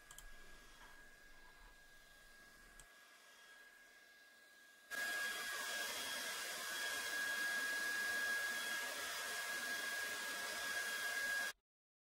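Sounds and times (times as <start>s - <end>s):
hair dryer blowing air: 0.0s - 11.6s.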